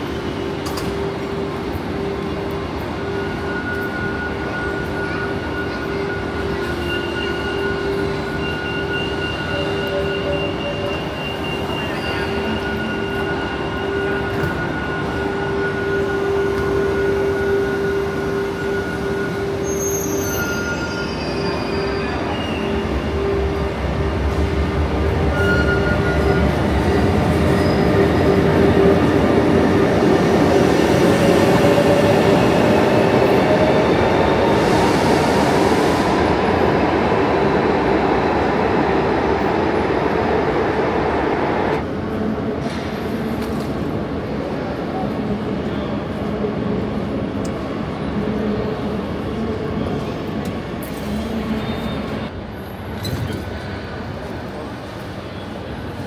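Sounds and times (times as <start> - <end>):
low train rumble: 0.0 - 56.0
rising train whine: 0.0 - 56.0.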